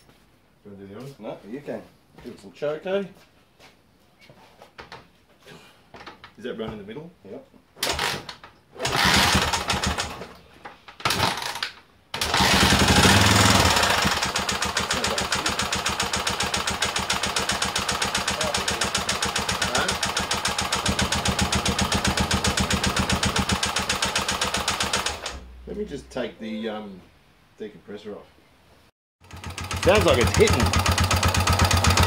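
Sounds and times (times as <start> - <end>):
motorcycle engine kick-started: 7.8 - 10.3, 11.0 - 25.4, 29.2 - 32.0
engine knocking: 12.2 - 25.4, 29.2 - 32.0
engine idling: 12.2 - 25.7, 29.2 - 32.0.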